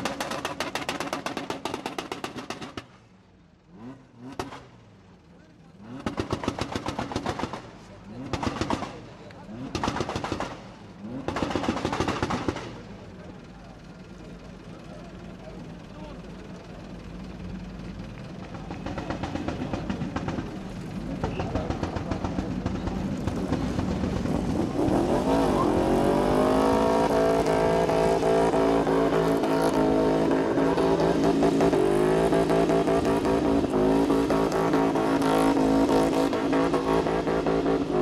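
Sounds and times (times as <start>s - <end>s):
car engine revving: 18.7s - 38.0s.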